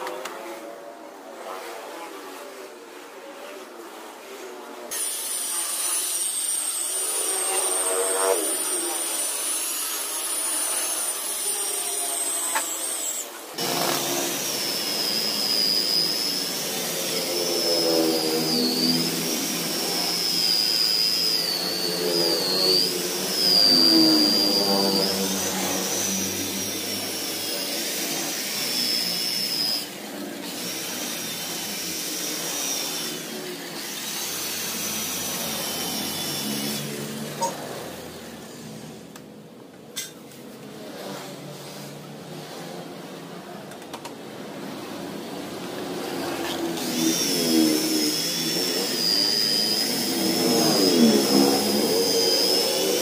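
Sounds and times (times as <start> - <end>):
electric polisher whining: 4.2 - 39.3, 44.1 - 53.0.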